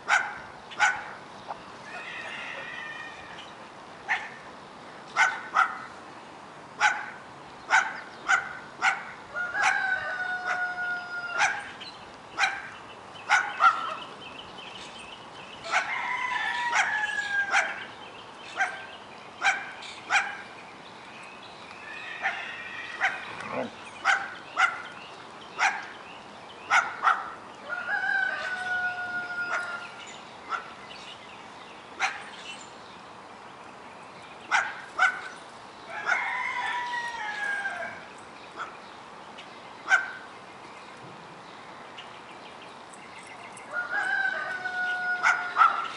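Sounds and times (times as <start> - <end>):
dog drawn-out howl: 9.4 - 11.6, 15.7 - 17.8, 21.9 - 23.7, 27.7 - 29.8, 43.8 - 45.9
puppies yipping and barking: 13.3 - 14.1, 15.6 - 17.9, 18.5 - 20.5, 21.9 - 25.0, 29.4 - 30.7, 43.5 - 45.9.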